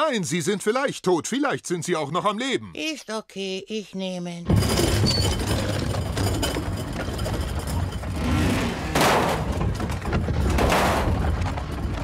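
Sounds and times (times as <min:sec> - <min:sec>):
house dragged across ground: 0:04.5 - 0:12.0
loud crunching: 0:04.5 - 0:12.0.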